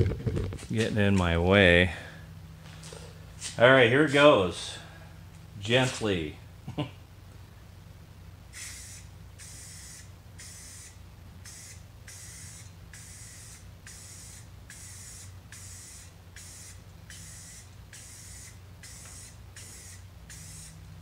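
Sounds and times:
spray paint can hissing: 8.5 - 20.8.

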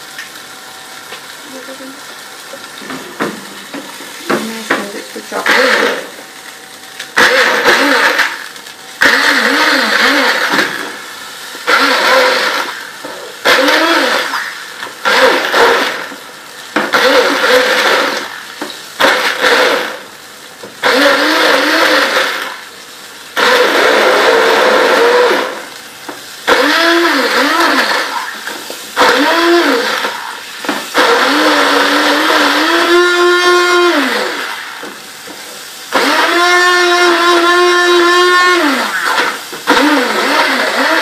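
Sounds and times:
electric blender grinding: 1.2 - 41.0.

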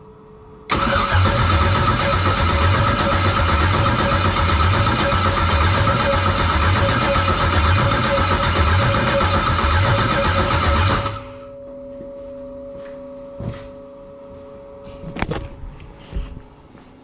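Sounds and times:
starter cranking engine: 0.7 - 11.3
faint steady tone: 11.2 - 17.0.

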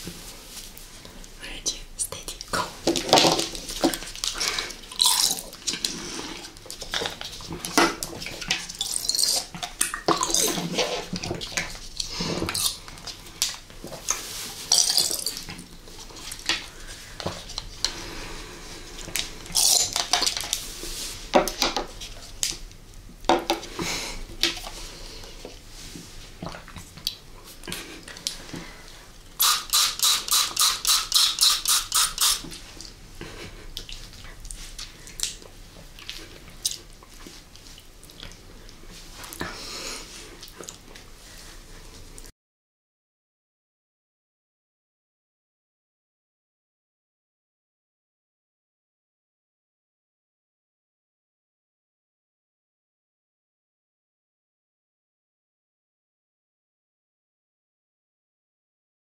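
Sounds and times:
wet slurping and squishing: 2.3 - 13.6, 29.4 - 32.9
short hissing spray squirts: 29.4 - 32.5.

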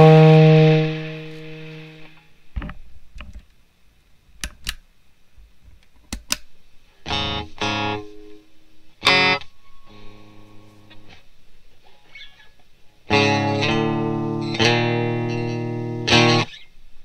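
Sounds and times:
electric guitar chords: 0.0 - 2.4, 7.0 - 12.2, 12.9 - 16.6
clicks: 4.4 - 4.8, 5.7 - 6.5.

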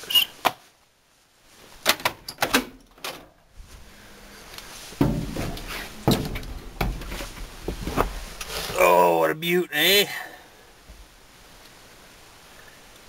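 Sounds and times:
heavy thumps of climbing into cab: 4.9 - 8.4.

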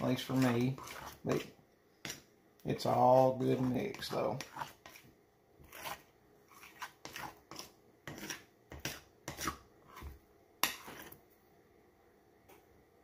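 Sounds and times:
hands rubbing dough in bowl: 0.0 - 2.2, 2.8 - 10.2.

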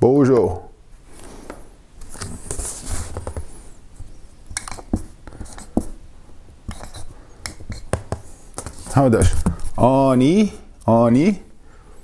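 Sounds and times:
marker squeaking on whiteboard: 2.5 - 6.0, 6.7 - 9.6.

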